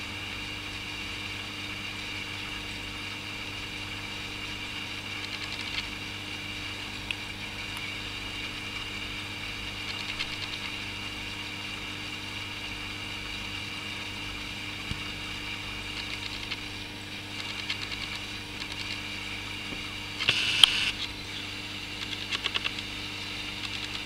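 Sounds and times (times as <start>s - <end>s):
aquarium equipment humming: 0.0s - 24.0s
rapid ticking: 4.4s - 6.0s, 9.7s - 10.9s, 15.8s - 19.1s.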